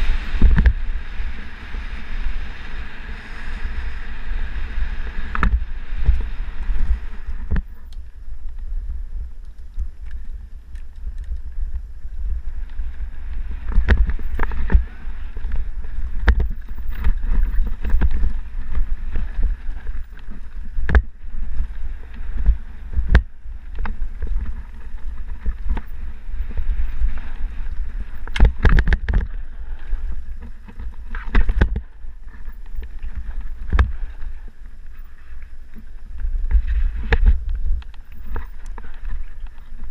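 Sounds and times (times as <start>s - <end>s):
bike tyre noise: 0.0s - 39.9s
wind rumble on microphone: 0.0s - 39.9s
bike knocks and rattles: 13.7s - 26.9s, 27.6s - 29.4s, 30.4s - 34.2s.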